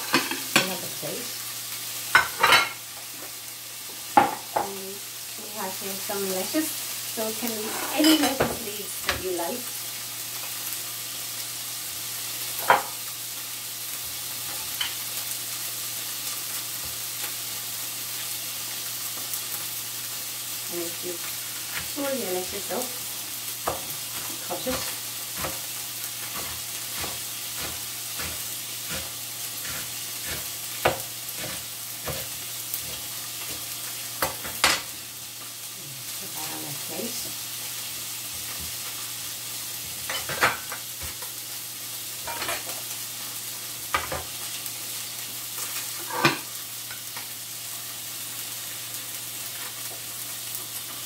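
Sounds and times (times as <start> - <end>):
fish sizzling in a frying pan: 0.0 - 51.0
knife chopping on cutting board: 23.6 - 25.6, 26.3 - 34.8.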